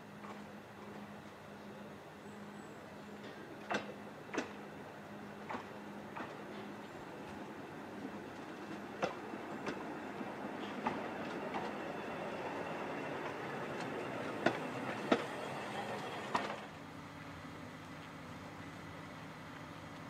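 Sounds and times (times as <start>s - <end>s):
steam train rolling past: 0.0s - 16.8s
wheels clanking and clicking: 8.3s - 16.8s.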